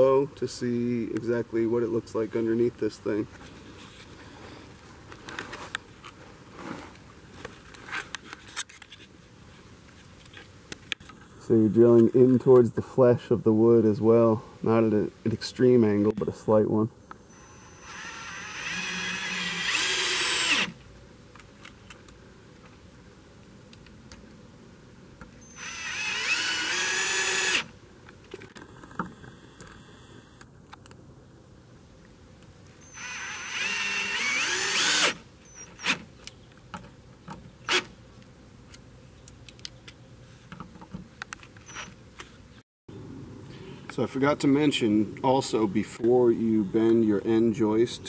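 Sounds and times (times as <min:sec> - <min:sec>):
cordless drill driving screws: 0:17.3 - 0:20.8, 0:25.4 - 0:27.7, 0:32.9 - 0:36.0.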